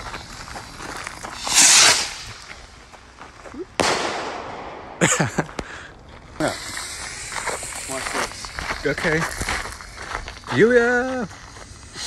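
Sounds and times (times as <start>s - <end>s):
firework hissing rush: 0.0s - 2.8s, 6.3s - 12.0s
firework bangs: 1.4s - 2.5s, 3.8s - 5.7s.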